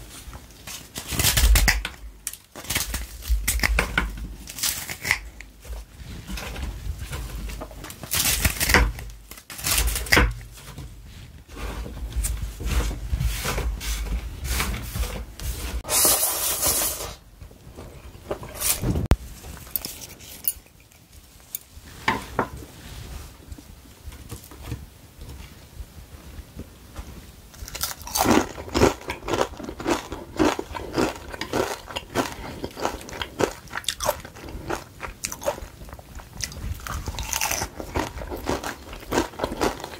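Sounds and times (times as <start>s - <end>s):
crunchy chewing: 27.6s - 39.9s.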